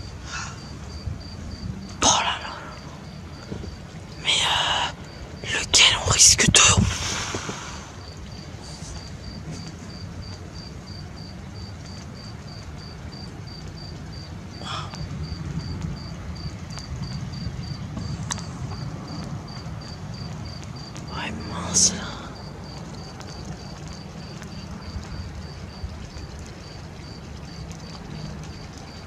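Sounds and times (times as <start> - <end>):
cricket chirping: 0.0 - 29.0.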